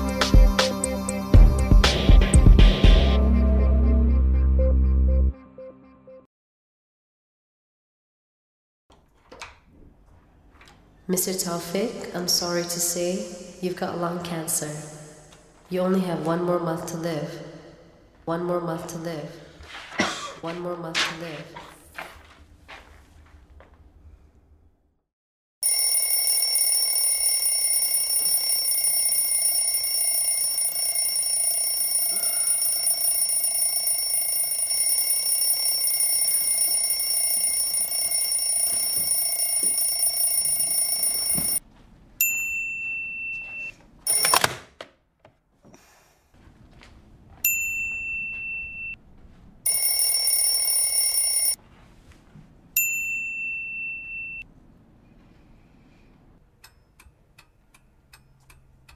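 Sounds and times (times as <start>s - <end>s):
high ringing: 25.6s - 41.6s, 42.2s - 44.4s, 47.5s - 49.0s, 49.7s - 51.6s, 52.8s - 54.4s.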